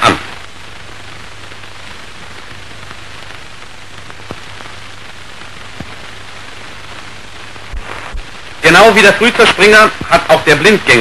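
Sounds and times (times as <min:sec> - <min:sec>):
film soundtrack hiss and crackle: 0:00.0 - 0:11.0
faint clicks: 0:04.1 - 0:04.5.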